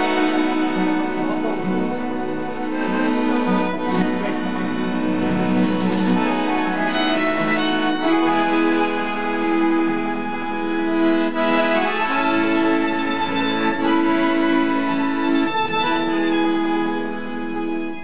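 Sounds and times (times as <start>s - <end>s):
acoustic guitar: 0.0s - 9.6s
piano accordion: 0.0s - 18.0s
violin: 0.0s - 18.0s.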